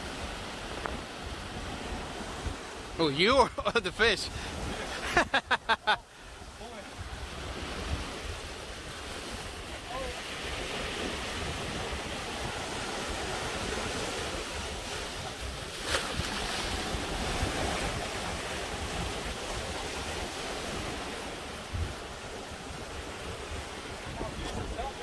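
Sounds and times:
waves washing against rocks: 6.7 - 25.0
wind buffeting microphone: 7.0 - 25.0.

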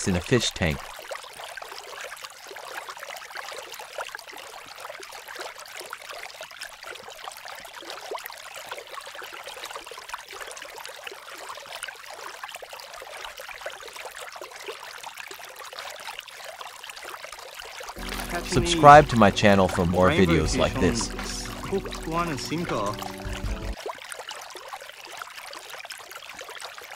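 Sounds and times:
trickle of running water: 0.8 - 18.4, 23.8 - 26.9.

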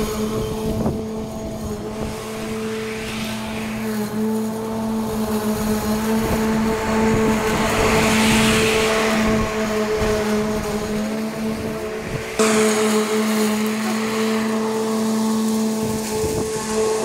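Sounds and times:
electric motor humming: 0.0 - 17.0
hiss: 0.0 - 17.0.

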